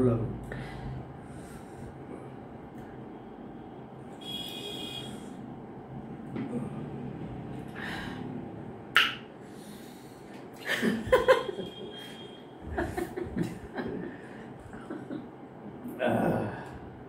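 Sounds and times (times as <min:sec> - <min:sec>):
sharp hissing breaths: 0:09.4 - 0:10.4
person chuckling: 0:10.6 - 0:16.7.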